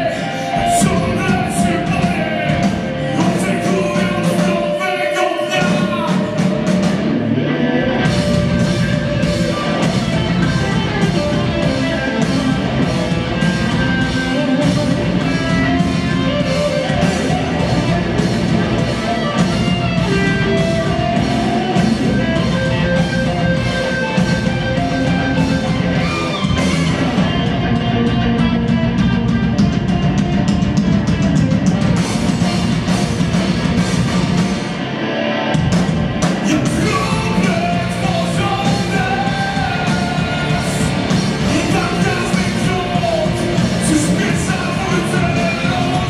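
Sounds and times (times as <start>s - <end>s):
person singing: 0.0s - 7.0s, 36.3s - 46.0s
bass guitar: 0.0s - 46.0s
drum kit: 0.0s - 46.0s
electric guitars: 0.0s - 46.0s.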